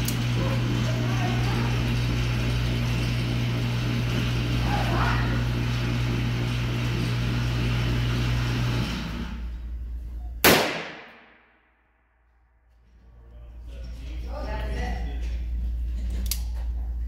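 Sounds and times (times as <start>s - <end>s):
revolver shot echoing indoors: 10.4s - 12.6s.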